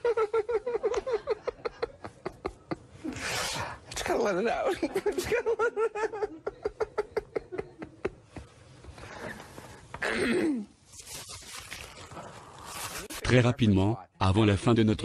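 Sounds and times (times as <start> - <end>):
man giggling: 0.0 - 2.9, 4.7 - 8.2.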